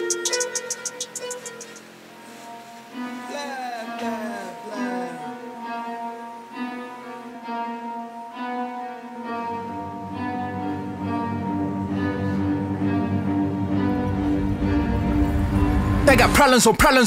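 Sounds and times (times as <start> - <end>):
instrumental rap music: 0.0 - 1.8, 16.0 - 17.0
deep bass line: 13.9 - 16.4.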